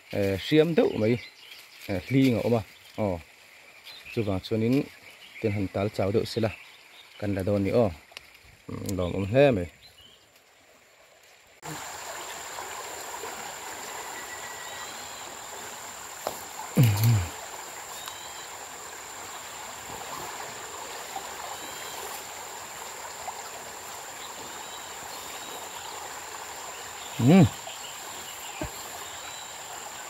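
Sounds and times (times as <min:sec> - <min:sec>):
stream water rushing: 0:10.4 - 0:30.0
faint chirps: 0:16.6 - 0:18.6, 0:26.8 - 0:30.0.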